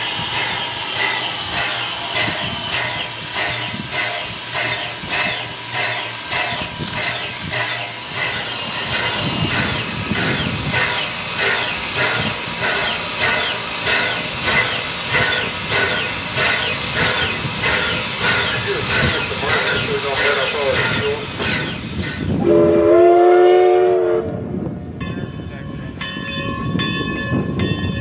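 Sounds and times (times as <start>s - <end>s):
steam hissing: 0.0s - 23.0s.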